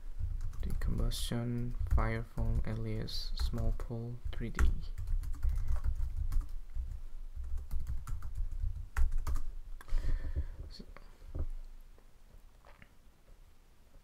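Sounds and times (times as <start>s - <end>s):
computer keyboard typing: 0.2s - 9.5s.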